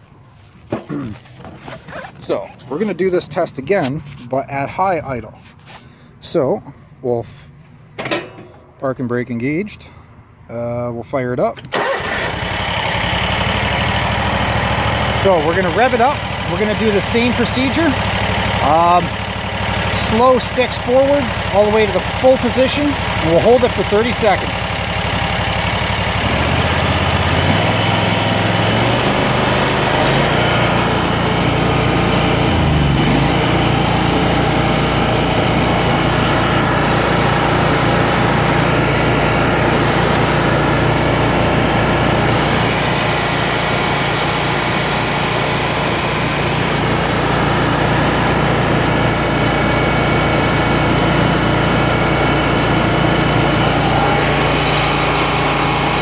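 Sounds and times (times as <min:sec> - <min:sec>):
mower engine running: 0:11.7 - 0:56.0.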